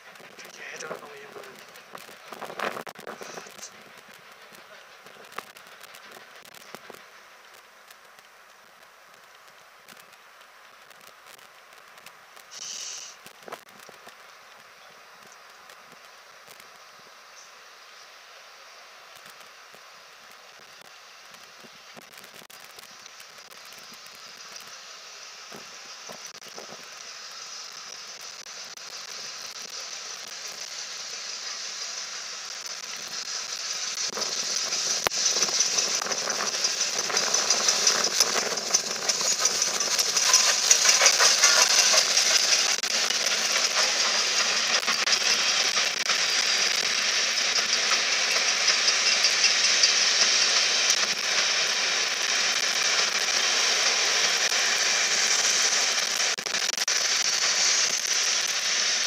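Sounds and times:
steam locomotive passing: 0:00.0 - 0:08.4, 0:23.2 - 0:59.0
train wheels clattering on rails: 0:32.8 - 0:56.2.

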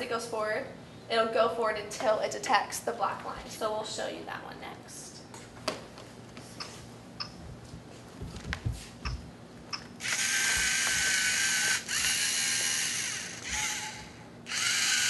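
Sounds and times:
servo motors whirring whine: 0:10.0 - 0:15.0.

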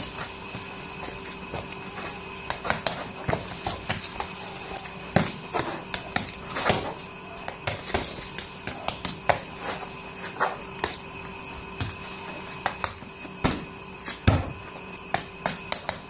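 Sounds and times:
punches thudding on heavy bag: 0:02.5 - 0:04.4, 0:05.1 - 0:09.5, 0:12.6 - 0:16.0.

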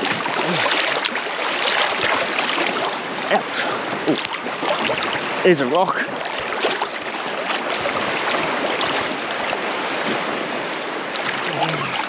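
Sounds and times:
water splashing from swimming: 0:00.0 - 0:12.0.

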